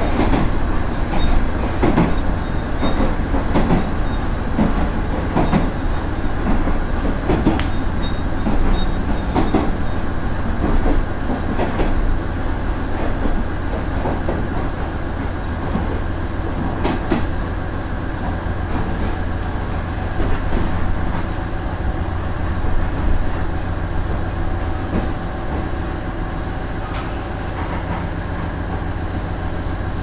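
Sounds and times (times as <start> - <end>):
rail-joint clicks: 0.0 - 12.0, 16.6 - 17.4, 26.8 - 28.9
railcar engine and wheels rumble: 0.0 - 30.0.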